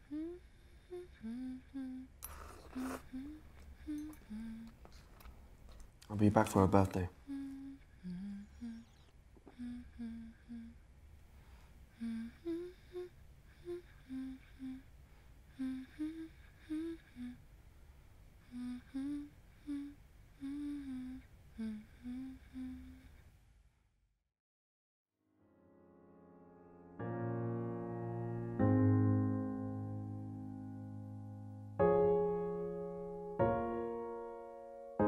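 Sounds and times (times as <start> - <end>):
woman humming softly: 0.0 - 5.1, 7.2 - 10.8, 11.9 - 14.9, 15.5 - 17.4, 18.4 - 23.2.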